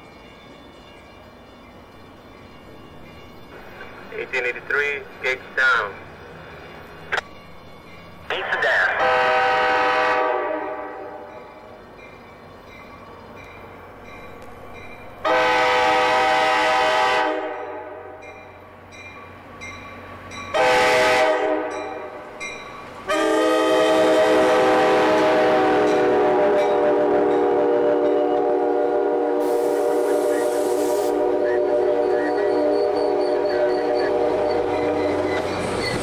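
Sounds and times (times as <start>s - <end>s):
train passing: 0.0s - 36.0s
train air horn blasts: 9.0s - 11.3s, 15.2s - 18.2s, 20.5s - 22.0s, 23.1s - 35.2s.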